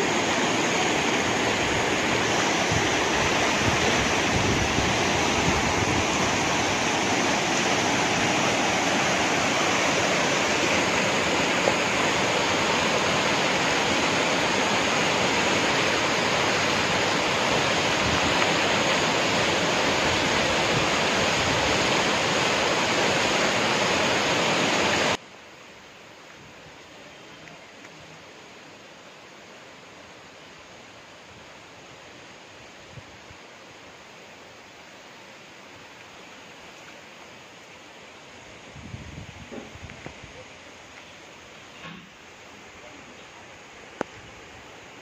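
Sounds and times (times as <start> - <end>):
turbulent water rushing over rapids: 0.0 - 25.2.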